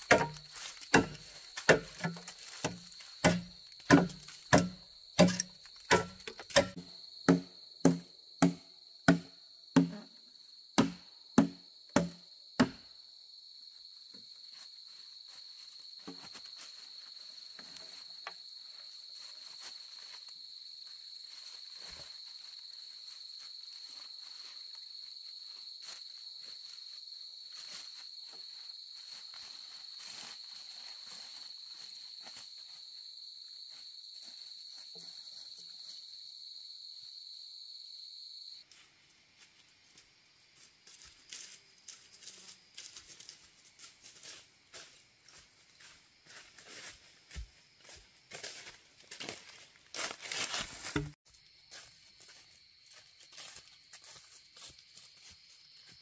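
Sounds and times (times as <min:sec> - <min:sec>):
footsteps in dry leaves: 0:00.0 - 0:05.9, 0:14.3 - 0:34.6, 0:40.5 - 0:56.0
machete chopping bamboo: 0:00.0 - 0:10.0, 0:10.8 - 0:12.8, 0:50.8 - 0:51.2.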